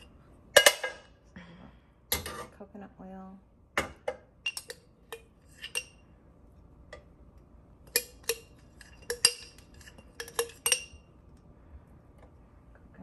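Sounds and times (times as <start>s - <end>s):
metal spoon clinking on glass jar: 4.4s - 6.0s, 7.9s - 11.0s.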